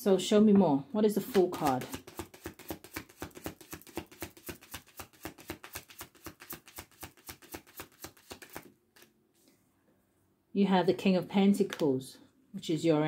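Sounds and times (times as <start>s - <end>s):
cards being shuffled: 1.2s - 9.1s.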